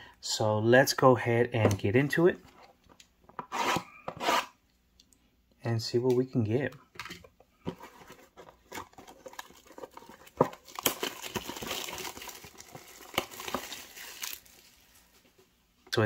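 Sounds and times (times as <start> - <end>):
plastic shrink wrap crinkling: 7.8 - 15.2
plastic wrap clicks and crackles: 8.7 - 14.7.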